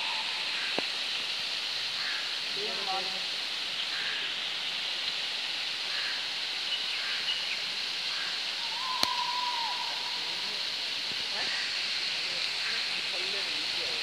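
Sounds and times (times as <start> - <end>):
running water over rocks: 0.0 - 14.0.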